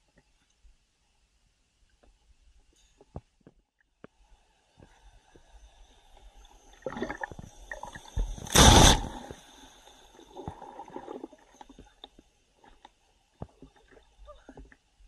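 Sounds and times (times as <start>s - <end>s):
wave crashing: 8.4s - 9.4s.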